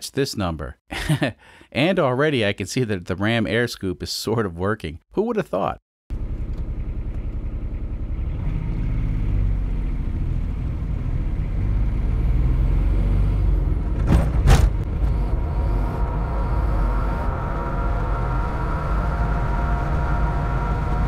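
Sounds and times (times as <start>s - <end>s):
diesel engine drone in cabin: 6.1s - 21.0s.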